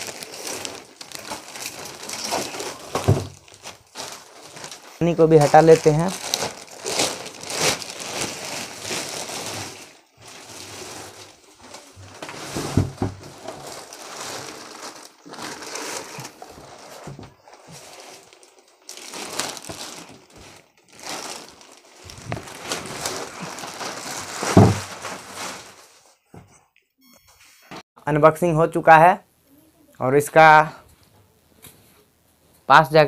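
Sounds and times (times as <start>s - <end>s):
plastic bag rustling: 0.0s - 26.2s.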